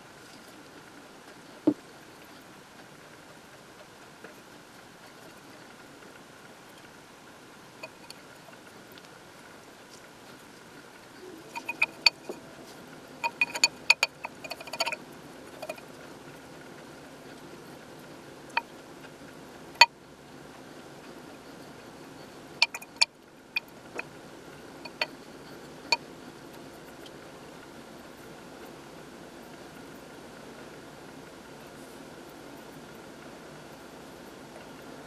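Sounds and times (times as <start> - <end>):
paintbrush clinking on glass: 11.5 - 12.4, 13.2 - 15.0, 15.6 - 15.8, 22.6 - 23.1, 24.8 - 25.1.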